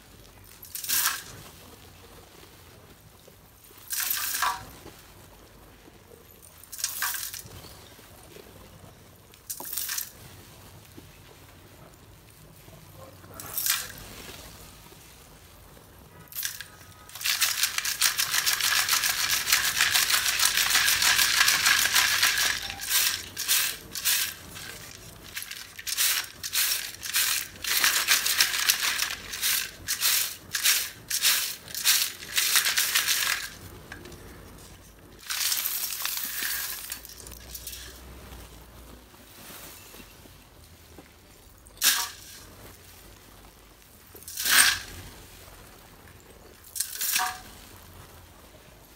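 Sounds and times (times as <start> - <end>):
clay pieces rattling in metal sieve: 0.5 - 1.5, 3.8 - 4.8, 6.6 - 7.6, 9.5 - 10.2, 13.4 - 14.3, 16.3 - 38.0, 41.8 - 42.5, 44.2 - 45.1, 46.6 - 47.6.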